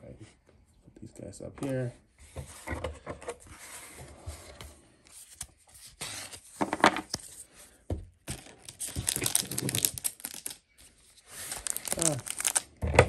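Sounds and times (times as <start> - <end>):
foil wrappers crinkling and tearing: 8.3 - 12.8.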